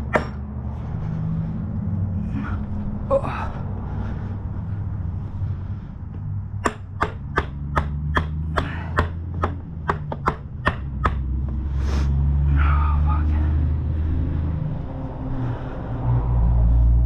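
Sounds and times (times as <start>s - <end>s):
steady low hum: 0.0s - 17.0s
sharp mallet taps: 6.6s - 11.3s.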